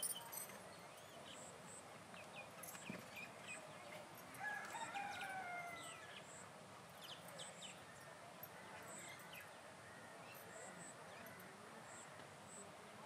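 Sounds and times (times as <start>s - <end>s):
rooster crowing: 4.4s - 6.0s.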